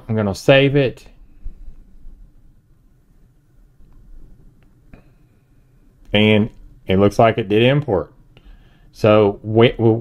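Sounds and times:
low hum: 0:00.0 - 0:10.0.

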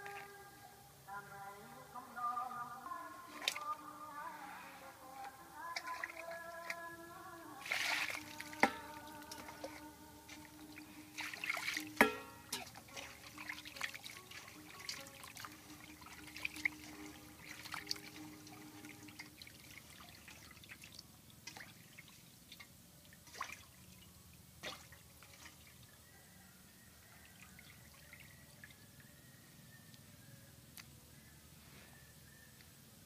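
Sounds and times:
water splashing and dripping: 0:03.3 - 0:03.8, 0:05.7 - 0:07.0, 0:07.6 - 0:26.0.

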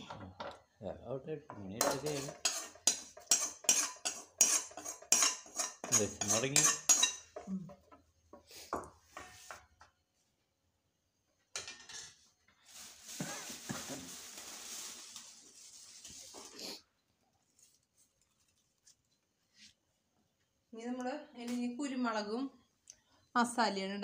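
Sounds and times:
metal utensils clinking on pots: 0:01.5 - 0:08.0.

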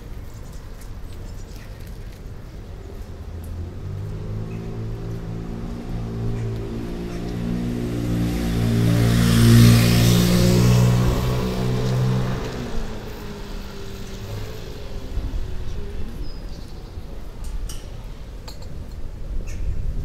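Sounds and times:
vehicle engine passing: 0:03.4 - 0:17.3.

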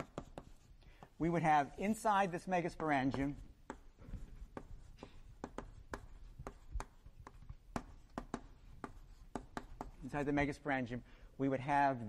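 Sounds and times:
writing taps on a board: 0:00.0 - 0:01.2, 0:02.8 - 0:03.9, 0:04.5 - 0:10.0.

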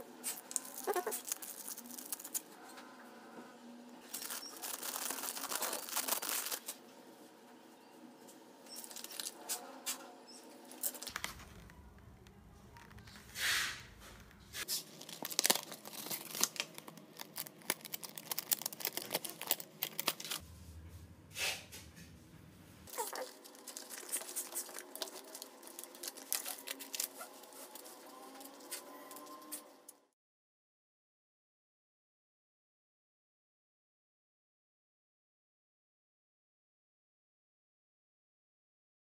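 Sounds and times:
rustling and crinkling: 0:00.2 - 0:02.6, 0:04.0 - 0:06.8, 0:08.8 - 0:09.7, 0:10.7 - 0:20.5, 0:22.8 - 0:29.7.

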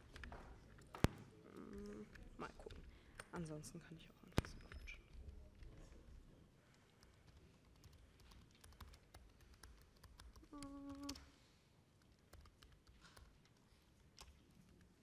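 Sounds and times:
laptop keyboard typing: 0:04.3 - 0:05.8, 0:06.8 - 0:11.3, 0:12.0 - 0:15.0.

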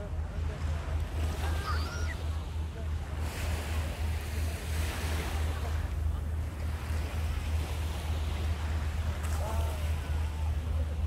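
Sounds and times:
sea surf: 0:00.0 - 0:11.0.

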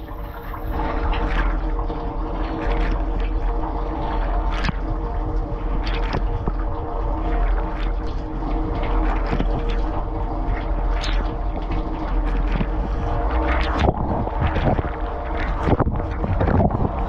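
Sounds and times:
water splashes: 0:00.0 - 0:17.0.

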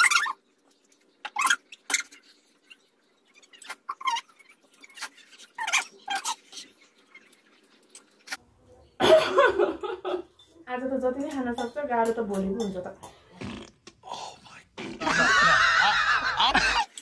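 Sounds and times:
people slurping noodles: 0:13.2 - 0:17.0.

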